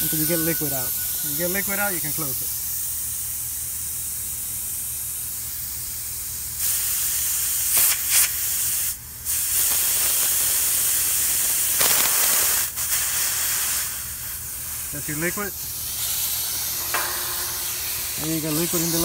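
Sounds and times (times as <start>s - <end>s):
gas hissing from valve: 0.0s - 19.0s
liquid mist spraying: 6.6s - 19.0s.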